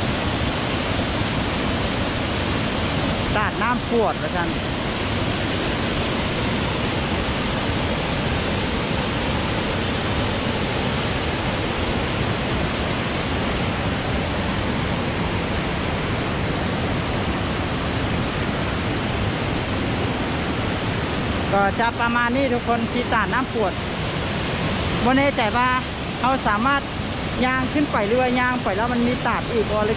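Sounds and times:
waterfall rushing: 0.0 - 29.9.

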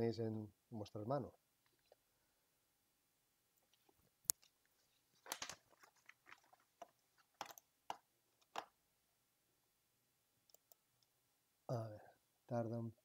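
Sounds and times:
faint clicks and crackles: 3.6 - 8.7.

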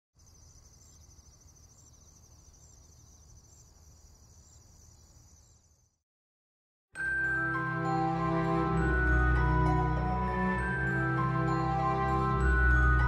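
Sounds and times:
faint crickets chirping: 0.2 - 6.0.

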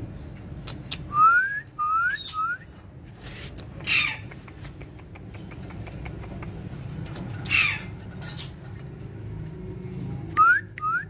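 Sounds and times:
parakeet whistles: 1.1 - 2.6
parakeet squawking: 3.8 - 4.3, 7.4 - 8.6.

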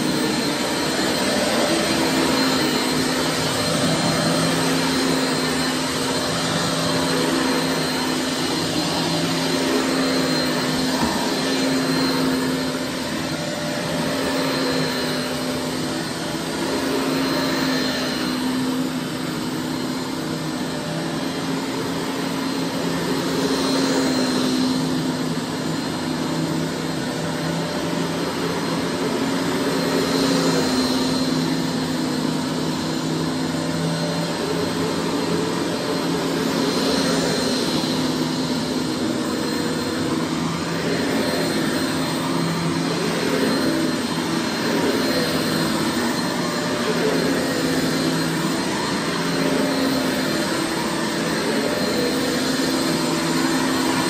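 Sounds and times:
vacuum cleaner running on carpet: 0.0 - 54.0.

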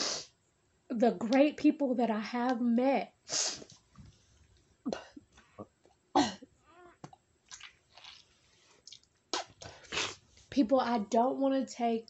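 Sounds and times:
woman coughing and clearing throat: 6.2 - 6.5.

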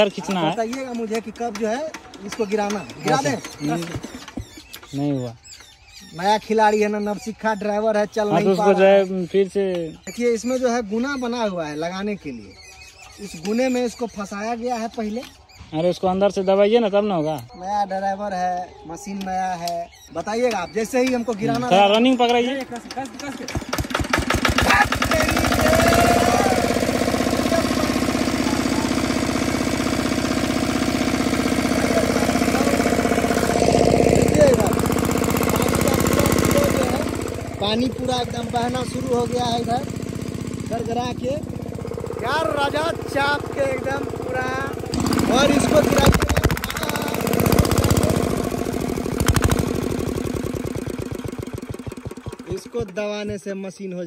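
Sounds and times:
diesel engine running steadily: 22.6 - 53.0.

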